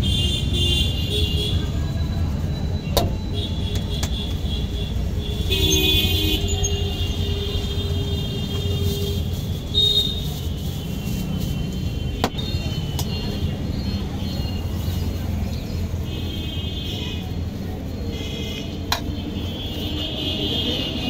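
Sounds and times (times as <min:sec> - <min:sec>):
road traffic rumbling: 0:00.0 - 0:21.0
vehicle horn: 0:04.5 - 0:12.9.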